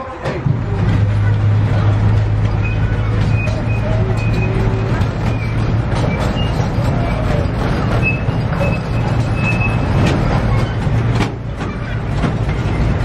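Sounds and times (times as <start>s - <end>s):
miniature train rumbling on track: 0.0s - 13.0s
wheels clicking: 0.1s - 13.0s
faint high squeaks: 2.5s - 10.9s.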